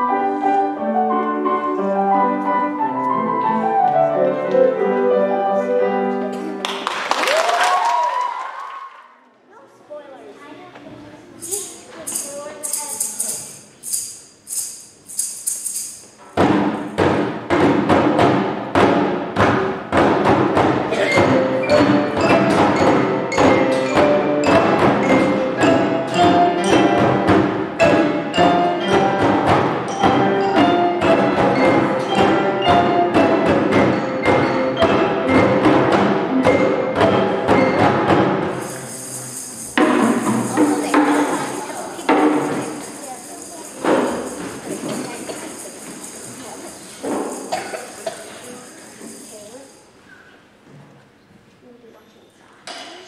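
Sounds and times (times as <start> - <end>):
keyboards: 0.0 - 6.7, 16.8 - 49.8
high rattling shakes: 11.3 - 17.0, 20.7 - 50.1
wooden xylophones: 11.4 - 50.0
hand drums: 15.2 - 49.8.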